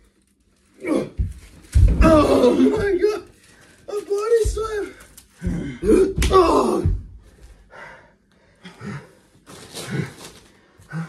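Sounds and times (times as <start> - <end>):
man crying out in pain: 2.0 - 3.2, 5.4 - 7.0.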